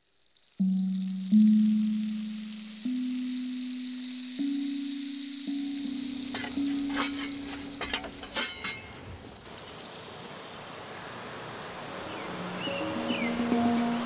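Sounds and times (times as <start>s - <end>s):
hot rocks sizzling in water: 0.0s - 9.8s.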